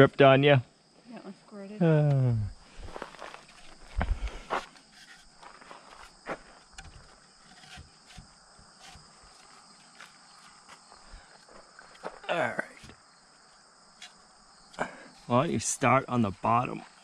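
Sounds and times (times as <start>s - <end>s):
crickets chirping: 0.0s - 17.0s
timber braces knocking: 3.5s - 10.8s.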